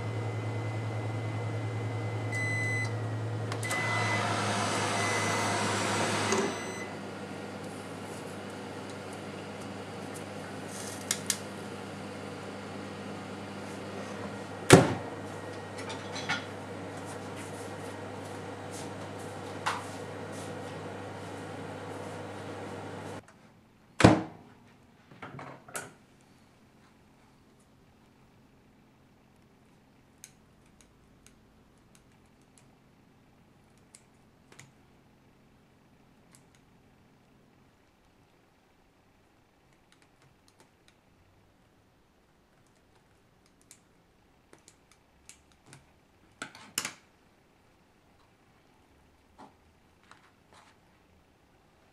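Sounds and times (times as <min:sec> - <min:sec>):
oven door shutting with thud: 0:14.6 - 0:15.1.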